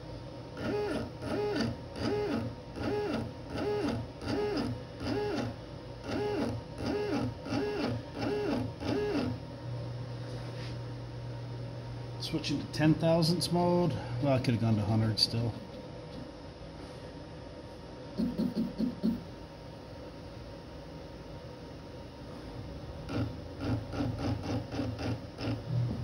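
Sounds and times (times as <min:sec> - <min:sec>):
steady low hum: 0:00.0 - 0:26.0
stepper motor whines: 0:00.6 - 0:09.4, 0:23.0 - 0:26.0.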